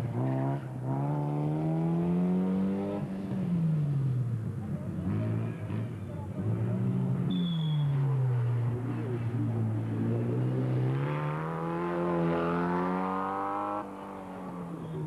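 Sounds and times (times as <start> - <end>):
race car engine accelerating: 5.0 - 14.8.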